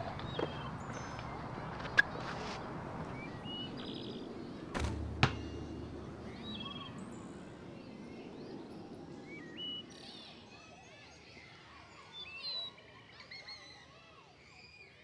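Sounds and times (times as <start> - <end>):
birds chirping: 0.0 - 10.6
sharp knock: 4.7 - 5.9
basketball thumping hoop: 4.7 - 6.3.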